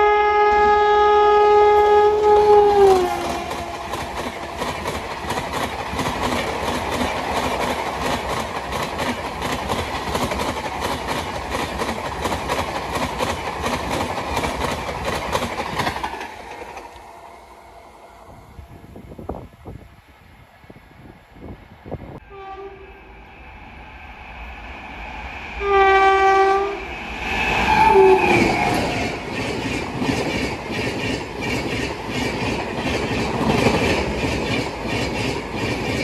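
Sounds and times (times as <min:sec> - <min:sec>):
locomotive horn chord: 0:00.0 - 0:04.0, 0:22.2 - 0:23.1, 0:25.6 - 0:26.9
train wheels clickety-clack: 0:02.2 - 0:17.1, 0:27.2 - 0:36.0.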